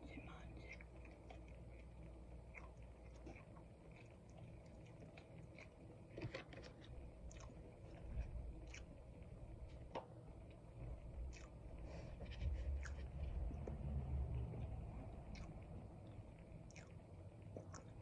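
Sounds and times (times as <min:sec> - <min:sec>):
person chewing: 0:00.6 - 0:09.0, 0:11.2 - 0:13.8, 0:15.2 - 0:15.6, 0:16.7 - 0:18.0
wet mouth clicks: 0:15.3 - 0:15.6.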